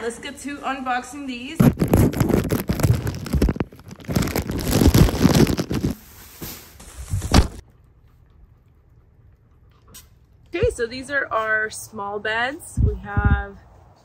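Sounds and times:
plastic packaging crinkling: 1.6 - 7.6.

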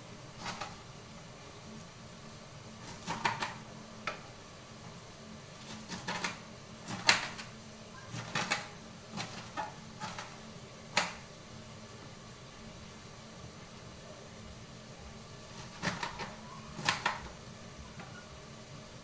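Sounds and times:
knife chopping on board: 2.8 - 4.2, 5.7 - 7.4, 8.1 - 10.4, 15.6 - 17.3.

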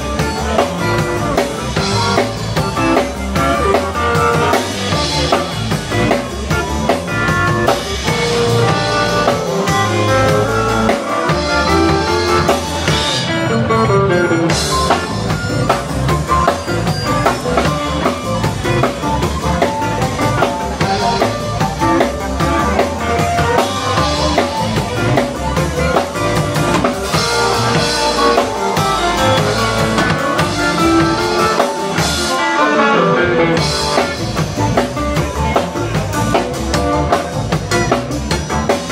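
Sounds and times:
drum kit: 0.0 - 38.9
electric bass: 0.0 - 38.9
electric guitar: 0.0 - 38.9
harmonica: 7.0 - 34.4.

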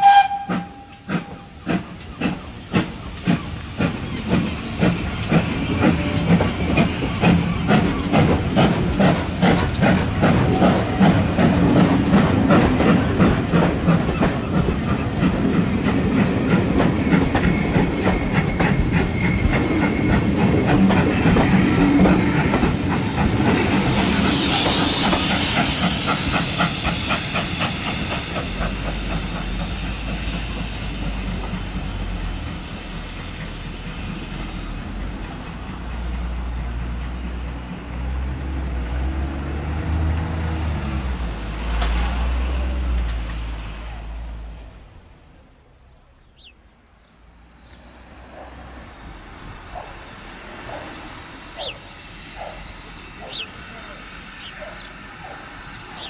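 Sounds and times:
train wheels clicking over rail joints: 0.0 - 43.7, 47.4 - 56.0
steam hiss: 0.0 - 44.6, 47.3 - 56.0
train rumble: 0.0 - 56.0.

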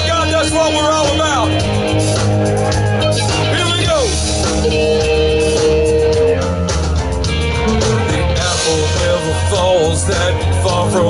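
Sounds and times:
bass: 0.0 - 11.0
drums: 0.0 - 11.0
electric guitars: 0.0 - 11.0
lead guitar bending note: 7.5 - 8.5.

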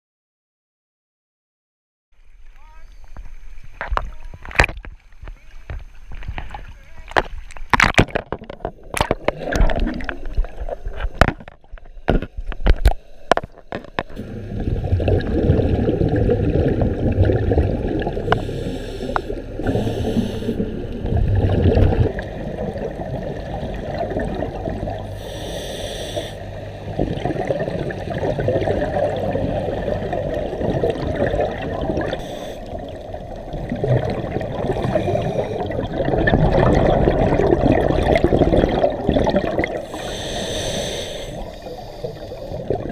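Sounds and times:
water splashing against camera: 2.4 - 42.9
exhaled bubbles: 7.8 - 42.9
scuba regulator breathing: 18.1 - 21.0, 25.0 - 26.9, 32.0 - 33.1, 34.6 - 36.0, 39.7 - 42.9.

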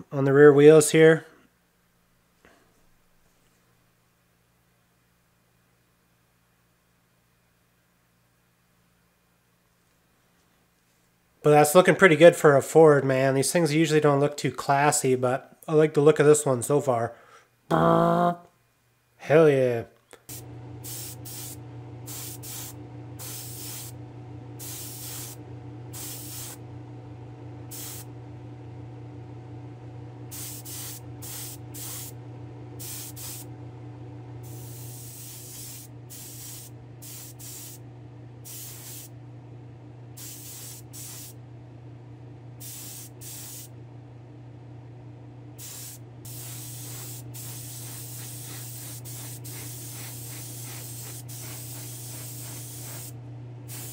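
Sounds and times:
paint sprayer hissing: 20.2 - 26.6, 27.6 - 28.2, 30.3 - 32.2, 32.8 - 33.5, 34.4 - 37.8, 38.4 - 39.1, 40.2 - 41.4, 42.6 - 43.7, 45.6 - 53.9
exhaust fan humming: 20.2 - 53.9.

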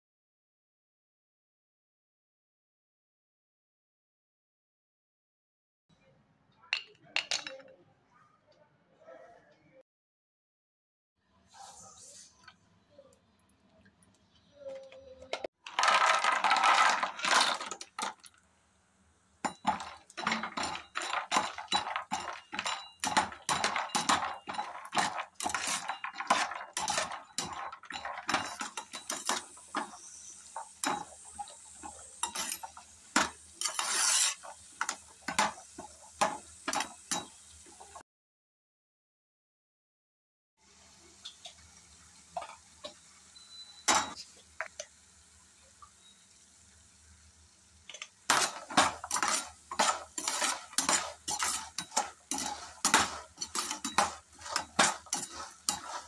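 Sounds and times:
faint sizzle: 11.2 - 38.0, 40.6 - 56.0
nuts rattling in a pan: 15.6 - 18.4, 19.5 - 37.4, 48.2 - 56.0
spatula scraping a pan: 19.5 - 38.0, 48.3 - 56.0.

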